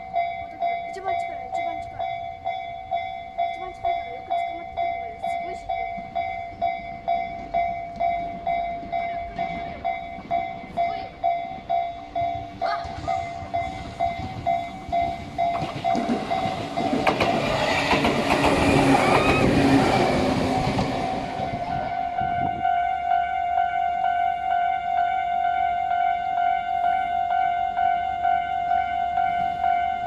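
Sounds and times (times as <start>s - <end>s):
level crossing bell ringing: 0.0s - 17.1s
electric train passing: 0.0s - 30.0s
train wheel clatter: 3.5s - 21.6s.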